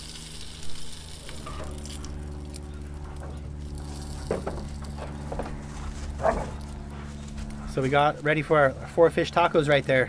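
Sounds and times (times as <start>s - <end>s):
frying sizzle: 0.0s - 2.6s
steady low hum: 0.0s - 10.0s.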